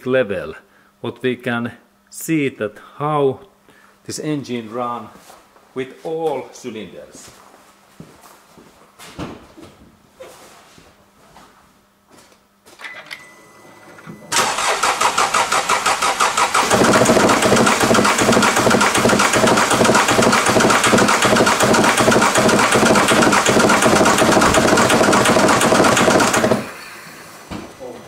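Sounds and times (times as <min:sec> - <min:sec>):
starter cranking engine: 0:14.3 - 0:26.8
diesel engine idling: 0:14.4 - 0:26.8.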